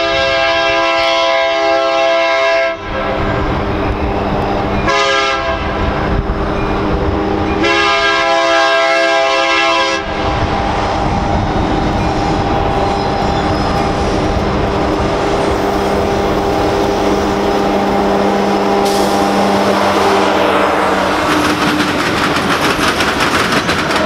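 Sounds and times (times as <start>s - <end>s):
train air horn blasts: 0.0s - 3.2s, 4.8s - 6.0s, 7.6s - 10.4s, 15.8s - 21.4s
diesel locomotive rumble: 0.0s - 24.0s.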